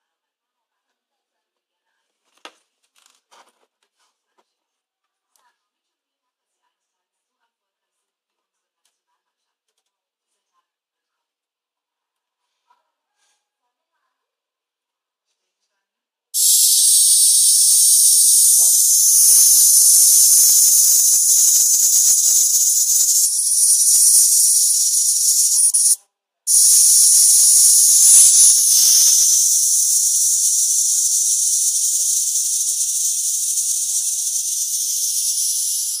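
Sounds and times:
electric arc hissing and crackling: 0:16.4 - 0:36.0.

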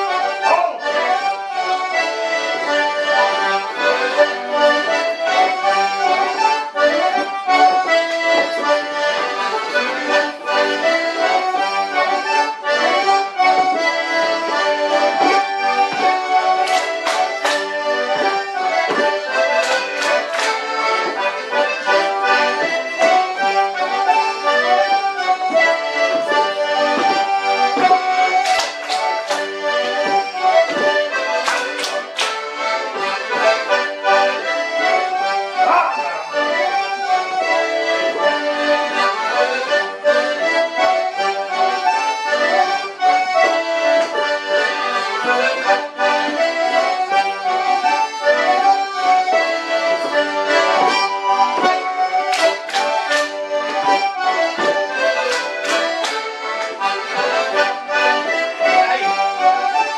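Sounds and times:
accordions playing dance tune: 0:00.0 - 0:59.9
dancers clapping: 0:15.2 - 0:21.3, 0:26.9 - 0:32.6, 0:51.6 - 0:54.0, 0:54.6 - 0:56.8.

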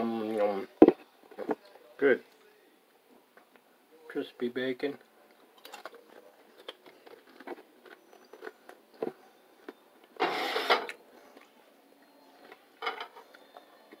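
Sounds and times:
chewing: 0:05.6 - 0:09.8
fork scraping ceramic plate: 0:10.2 - 0:10.9.

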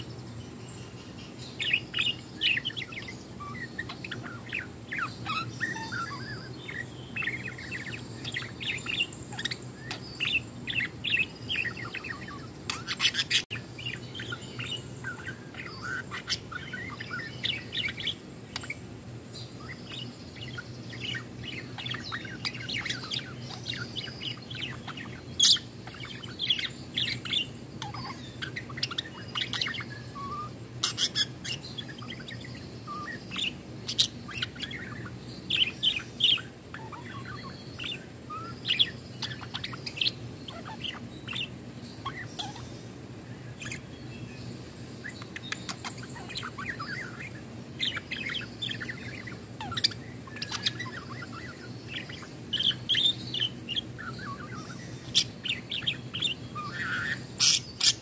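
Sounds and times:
budgerigar warbling: 0:19.6 - 0:42.7, 0:45.3 - 0:58.0.

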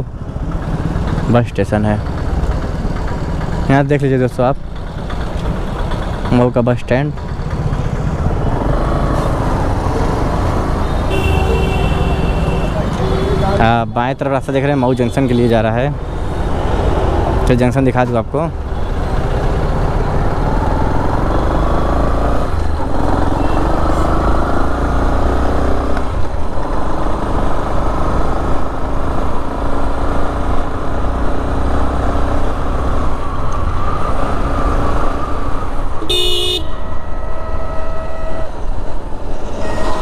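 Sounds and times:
motorbike engine and road rumble: 0:00.0 - 0:40.0
short horn toot: 0:36.1 - 0:38.6.

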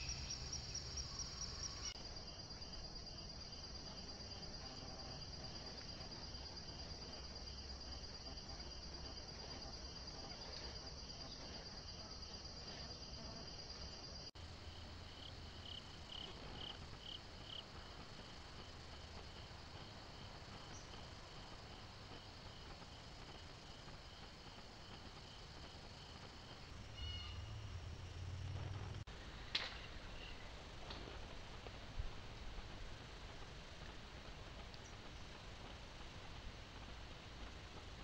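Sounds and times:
rhythmic insect chirps: 0:00.0 - 0:08.1, 0:14.3 - 0:29.0
insects trilling: 0:00.0 - 0:13.6, 0:14.2 - 0:38.0.

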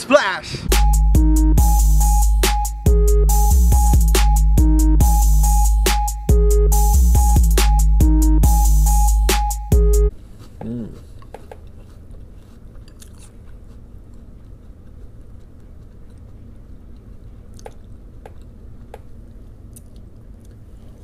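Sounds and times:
person chewing crunchy cereal: 0:10.4 - 0:21.0.

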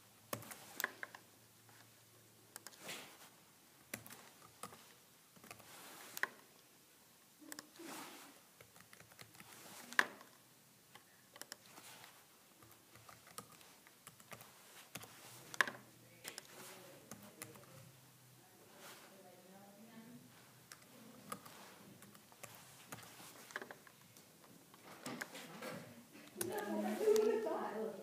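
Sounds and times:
laptop keyboard typing: 0:00.3 - 0:01.3, 0:02.5 - 0:02.9, 0:03.9 - 0:06.5, 0:07.4 - 0:07.8, 0:08.6 - 0:10.4, 0:11.0 - 0:18.0, 0:20.6 - 0:24.0, 0:24.8 - 0:25.4, 0:26.3 - 0:27.6.

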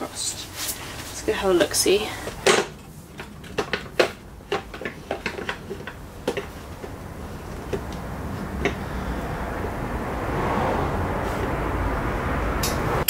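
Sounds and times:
metal box clicks and knocks: 0:02.4 - 0:07.0.

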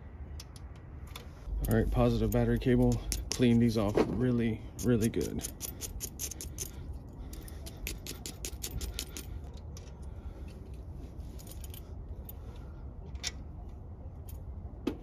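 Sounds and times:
wire brush scrubbing metal: 0:04.8 - 0:06.8.

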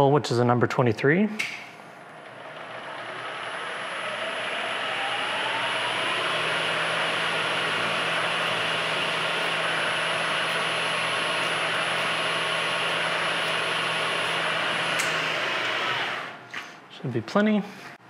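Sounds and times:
low hum: 0:02.0 - 0:15.2
drill cutting into metal: 0:02.2 - 0:16.5.

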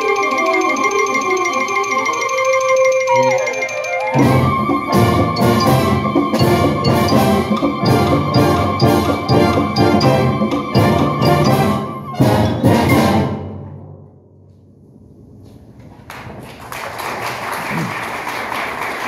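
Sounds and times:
wind band playing chords: 0:00.0 - 0:13.9
audience applause: 0:16.0 - 0:19.0.

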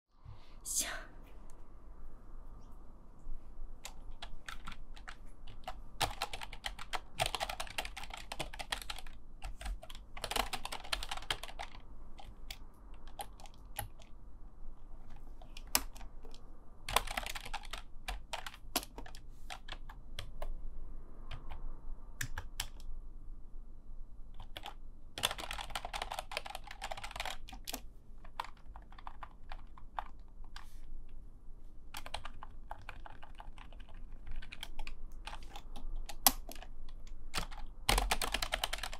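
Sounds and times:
typing on computer keyboard: 0:03.8 - 0:14.1, 0:15.4 - 0:20.6, 0:21.3 - 0:21.6, 0:22.2 - 0:22.9, 0:24.3 - 0:30.7, 0:31.9 - 0:38.9.

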